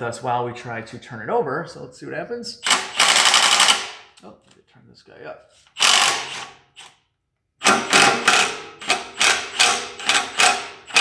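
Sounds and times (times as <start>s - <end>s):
impact wrench hammering: 2.6s - 4.2s, 5.8s - 6.9s, 7.6s - 11.0s.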